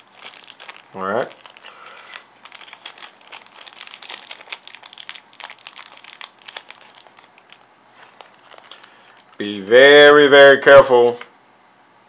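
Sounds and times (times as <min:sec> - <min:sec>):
plastic bag crinkling: 0:00.0 - 0:09.6.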